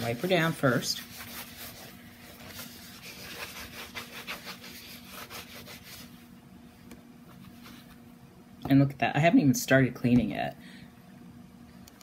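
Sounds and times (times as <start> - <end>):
wipe rubbing on canvas: 0.0 - 6.3.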